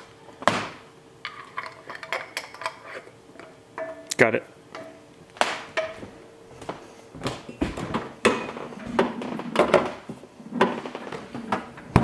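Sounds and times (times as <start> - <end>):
footsteps on wooden floor: 5.9 - 9.4.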